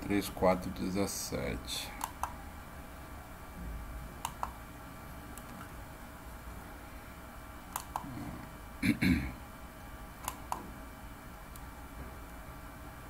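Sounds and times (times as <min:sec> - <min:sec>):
low electrical hum: 0:00.0 - 0:13.0
computer mouse clicks: 0:02.0 - 0:02.4, 0:04.2 - 0:04.6, 0:05.3 - 0:05.7, 0:07.7 - 0:08.1, 0:10.2 - 0:10.7.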